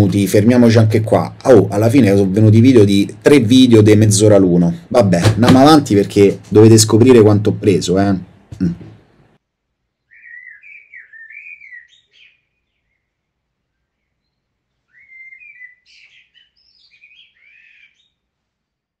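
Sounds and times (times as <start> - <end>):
bird chirping and twittering: 10.0 - 18.3.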